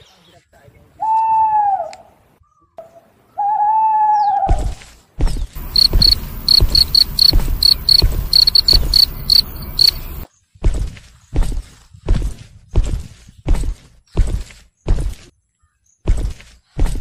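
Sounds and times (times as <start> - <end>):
low thudding footsteps: 4.6 - 15.3
high cricket chirps: 5.6 - 10.3.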